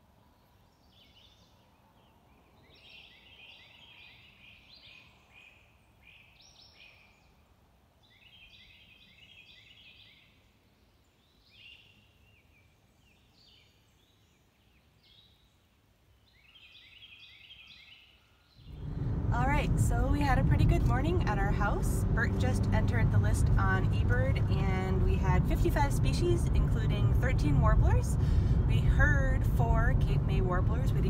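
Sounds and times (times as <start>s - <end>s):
songbirds singing: 0.2s - 19.1s.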